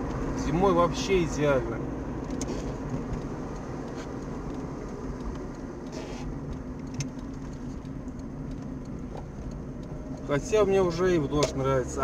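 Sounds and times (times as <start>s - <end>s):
car engine hum: 0.0s - 12.0s
faint ticks: 2.2s - 11.5s
tyres hissing on wet road: 5.9s - 6.3s.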